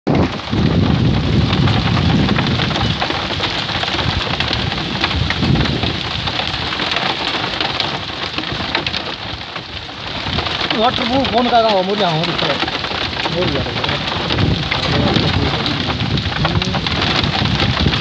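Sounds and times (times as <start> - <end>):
heavy rain and hail pelting: 0.1 - 18.0
low rumble: 13.4 - 18.0.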